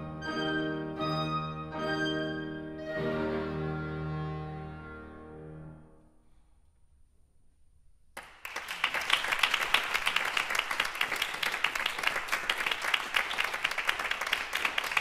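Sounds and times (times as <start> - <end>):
audience applause: 8.2 - 15.0.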